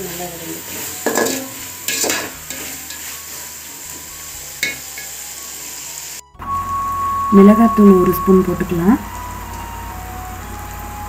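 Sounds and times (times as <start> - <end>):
vegetables sizzling in oil: 0.0 - 11.0
metal spatula scraping pot: 0.5 - 5.2
steady high tone: 6.3 - 11.0.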